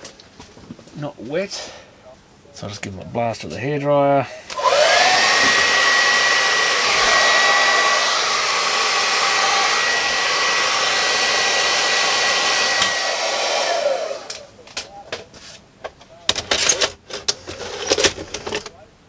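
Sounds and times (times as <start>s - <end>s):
hair dryer motor whine: 4.5s - 14.5s.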